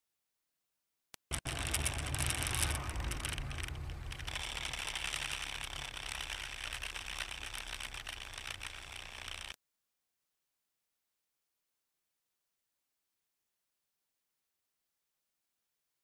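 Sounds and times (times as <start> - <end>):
car engine and road noise: 1.2 - 9.6.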